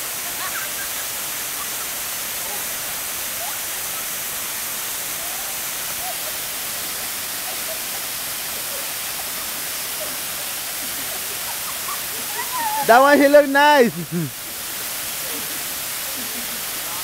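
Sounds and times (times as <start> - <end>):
waterfall pouring into pool: 0.0 - 17.0.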